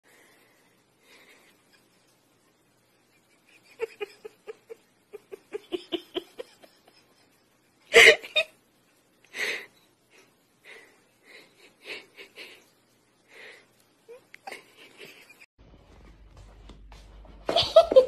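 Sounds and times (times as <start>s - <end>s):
person laughing: 3.2s - 7.3s, 7.9s - 8.6s, 14.1s - 15.5s, 17.5s - 18.0s.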